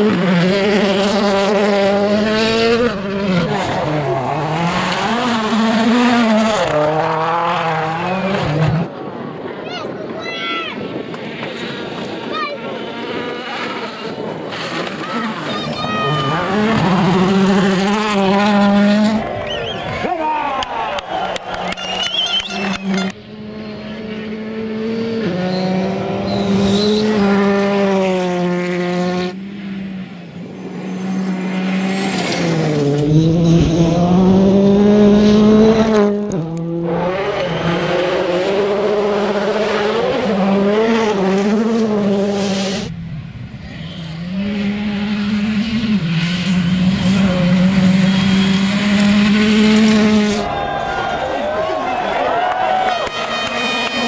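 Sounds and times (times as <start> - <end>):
rally car engines revving: 0.0 - 10.2, 10.8 - 54.0
gravel and tyre noise: 0.0 - 54.0.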